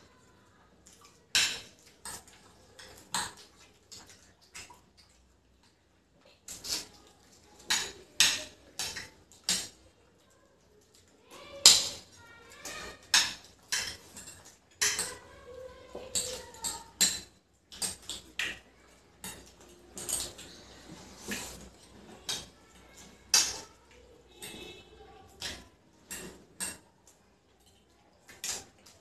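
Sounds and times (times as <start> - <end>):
cutlery clinking on plates: 1.3 - 3.4, 12.6 - 15.3, 19.2 - 23.7, 24.4 - 26.9
mouth sounds of eating noodles: 19.9 - 24.8.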